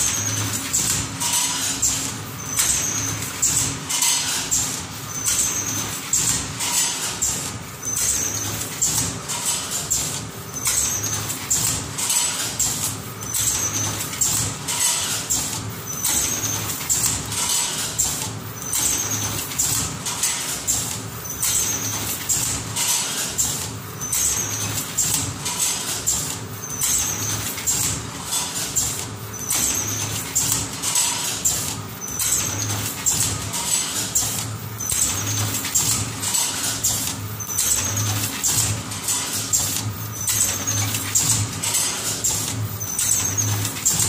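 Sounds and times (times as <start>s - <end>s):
machine clicking and hissing: 0.0s - 44.0s.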